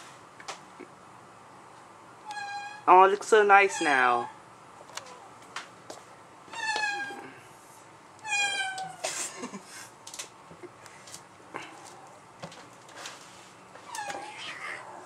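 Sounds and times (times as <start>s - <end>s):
kitten meowing: 2.3s - 2.9s, 6.6s - 7.3s, 8.2s - 9.0s, 13.9s - 14.9s.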